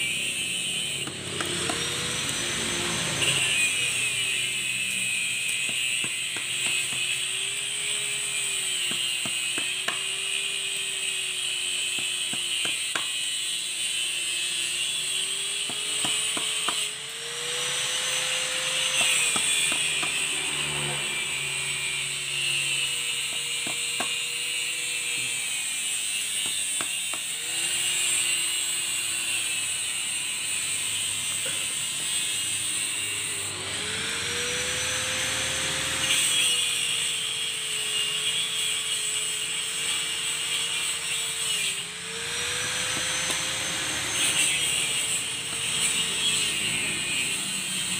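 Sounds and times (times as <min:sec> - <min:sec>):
high rattling buzz: 0:13.4 - 0:47.9.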